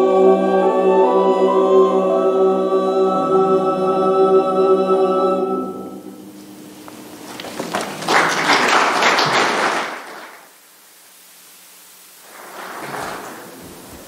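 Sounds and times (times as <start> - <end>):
congregation applauding: 7.2 - 10.6.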